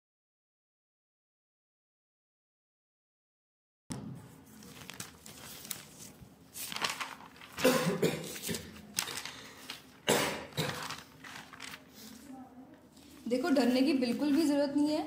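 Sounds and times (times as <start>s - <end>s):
person coughing: 7.6s - 8.8s, 10.0s - 11.0s.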